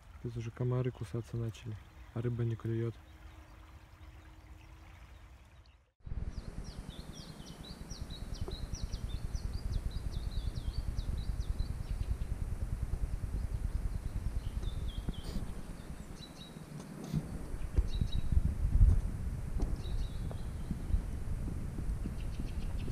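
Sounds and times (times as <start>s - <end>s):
songbird chirping: 0.3s - 12.4s, 13.3s - 18.4s, 19.7s - 21.2s
wind rumble on microphone: 6.0s - 22.9s.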